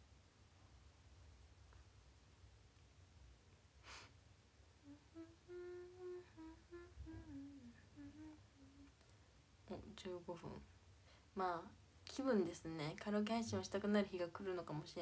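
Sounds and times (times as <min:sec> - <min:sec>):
woman humming: 0:04.8 - 0:09.0.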